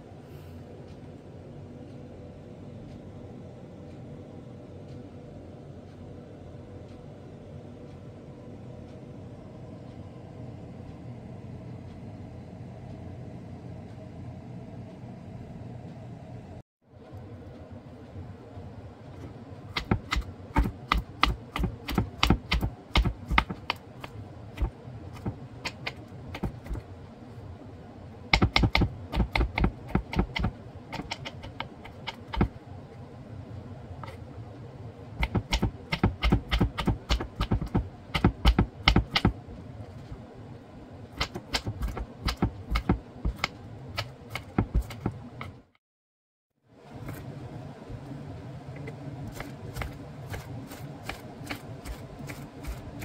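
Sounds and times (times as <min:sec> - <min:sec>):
knife chopping on wooden board: 0:19.8 - 0:26.8, 0:28.4 - 0:32.5, 0:35.2 - 0:39.4, 0:41.2 - 0:45.2.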